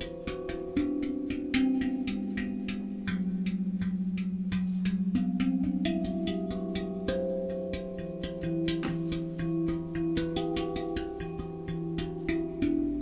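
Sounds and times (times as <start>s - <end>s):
steel tongue drum played with fingers: 0.0s - 13.0s.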